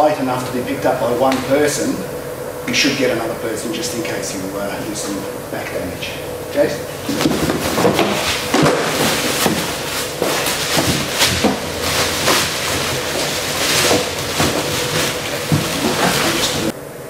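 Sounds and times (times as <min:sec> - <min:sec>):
cardboard rustling: 0:06.9 - 0:16.7
plastic packaging crinkling: 0:07.0 - 0:16.7.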